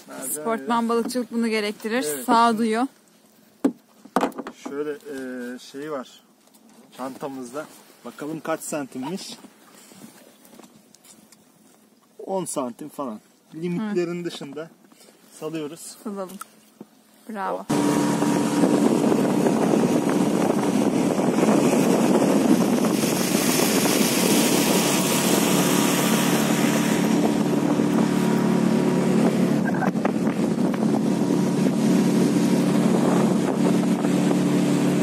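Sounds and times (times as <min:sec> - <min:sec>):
rush of wind and water: 0:06.7 - 0:35.0
outboard motor running: 0:16.0 - 0:35.0.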